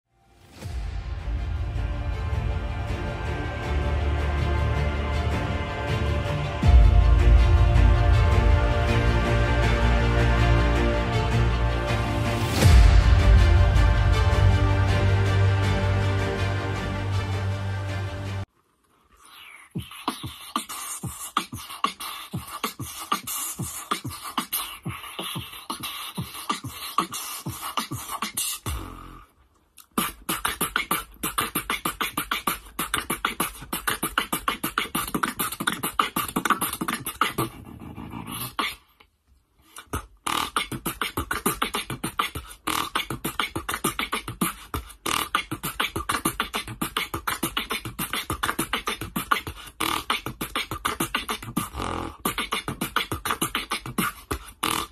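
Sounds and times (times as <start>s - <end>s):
low bass tone: 0.6s - 18.4s
person beatboxing: 19.2s - 38.9s, 39.7s - 54.9s.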